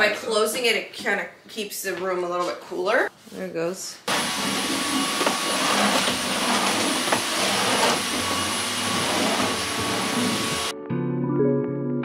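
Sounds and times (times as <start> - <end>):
stick vacuum cleaner running: 4.1 - 10.7.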